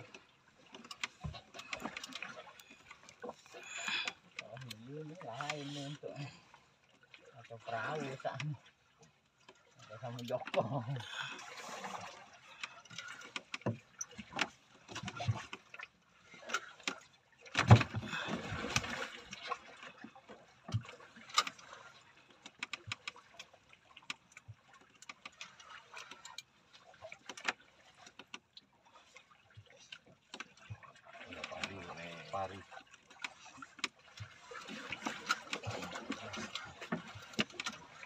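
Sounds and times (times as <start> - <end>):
thump with rush of water: 0.0 - 5.6, 10.0 - 23.2, 33.2 - 38.0
water lapping against boat hull: 0.0 - 38.0.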